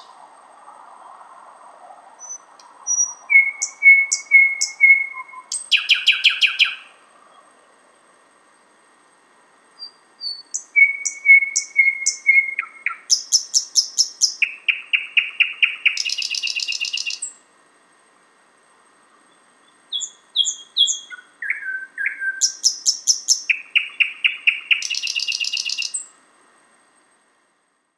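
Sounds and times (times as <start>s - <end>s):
thrush nightingale singing: 0.0s - 0.3s, 2.2s - 7.4s, 9.7s - 17.5s, 19.1s - 26.2s.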